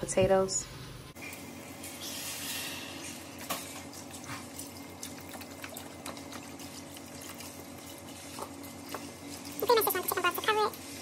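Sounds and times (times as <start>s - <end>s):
liquid pouring into a pot: 3.0s - 11.0s.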